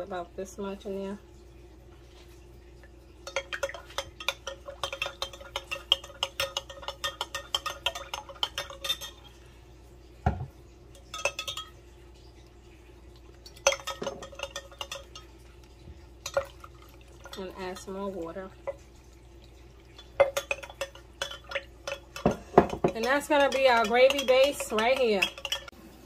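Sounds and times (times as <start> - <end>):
spoon clinking against glass cup: 3.2 - 9.3, 11.0 - 11.8, 13.6 - 15.3, 20.0 - 25.7.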